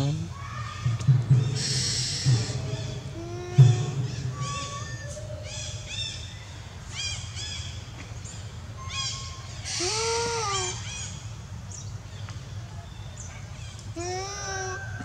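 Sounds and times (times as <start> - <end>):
animal arching call: 1.5 - 6.2, 8.8 - 11.2.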